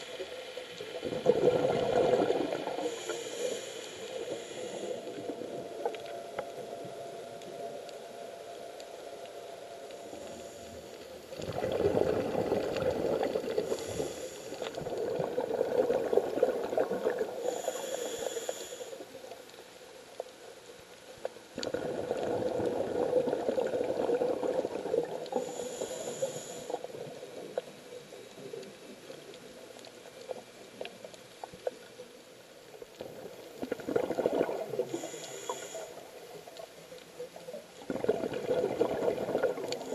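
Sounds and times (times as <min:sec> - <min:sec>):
exhaled bubbles rumbling underwater: 0:00.0 - 0:08.5, 0:09.7 - 0:18.0, 0:21.5 - 0:32.1, 0:32.7 - 0:39.9
faint crackling clicks: 0:00.0 - 0:39.9
regulator inhalation hiss: 0:02.6 - 0:05.3, 0:13.4 - 0:14.9, 0:17.3 - 0:19.2, 0:25.3 - 0:27.2, 0:34.7 - 0:36.5.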